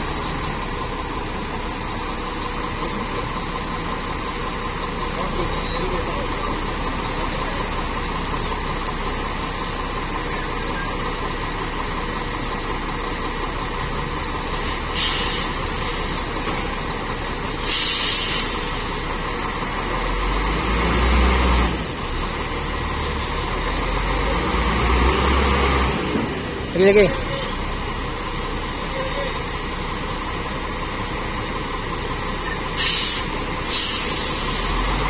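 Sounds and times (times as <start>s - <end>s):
diesel engine rumble: 0.0s - 35.0s
air brakes hissing: 14.5s - 16.2s, 17.5s - 19.2s, 32.7s - 35.0s.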